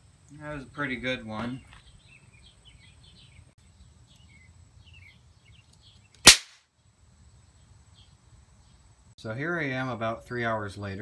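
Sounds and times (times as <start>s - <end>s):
electric spark crack: 6.2s - 6.6s.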